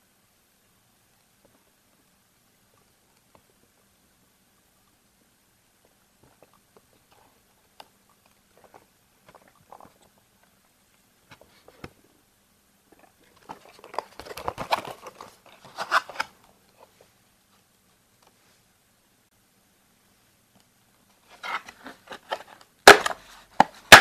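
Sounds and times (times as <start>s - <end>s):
cardboard scraping and crackling: 21.2s - 24.0s.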